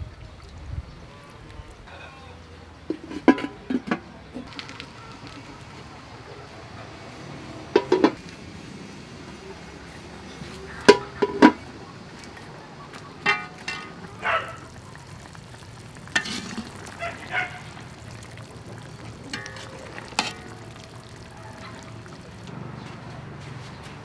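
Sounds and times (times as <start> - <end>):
utensils clinking on pot and bowl: 2.9 - 4.5, 13.2 - 14.8, 16.0 - 22.5.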